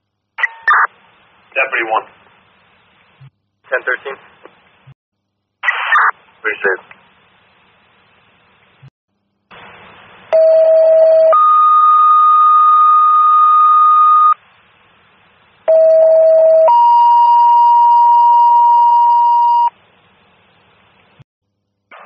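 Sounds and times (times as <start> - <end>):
faint radio hiss: 0.0 - 10.4, 14.4 - 15.7, 19.7 - 21.2.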